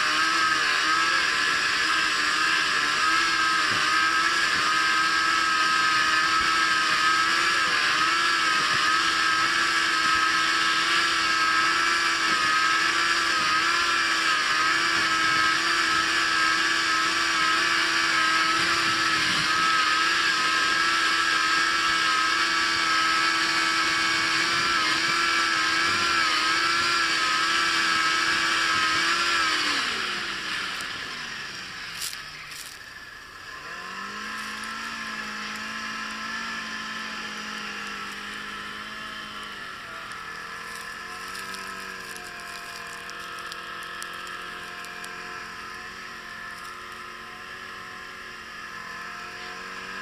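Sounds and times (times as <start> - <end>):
snowmobile engine running: 0.0 - 50.0.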